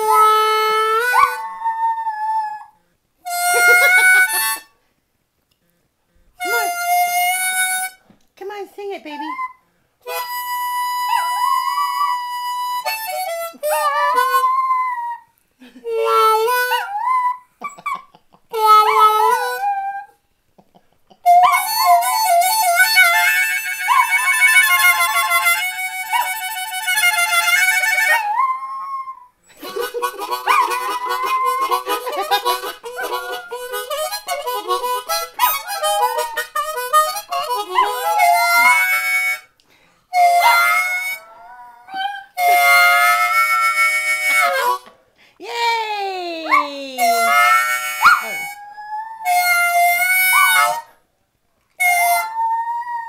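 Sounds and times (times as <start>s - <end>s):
blues harmonica: 0.0s - 1.6s, 3.2s - 4.8s, 6.4s - 8.0s, 10.0s - 14.9s, 15.8s - 17.9s, 18.5s - 20.0s, 21.2s - 28.4s, 29.4s - 44.9s, 47.0s - 51.0s, 51.7s - 52.6s
dog howling: 18.8s - 20.2s, 30.3s - 32.2s, 37.4s - 38.9s, 46.4s - 50.9s.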